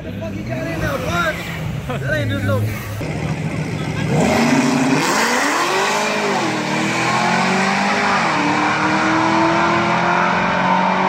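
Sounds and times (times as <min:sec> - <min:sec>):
cars racing at full throttle: 0:00.0 - 0:11.0.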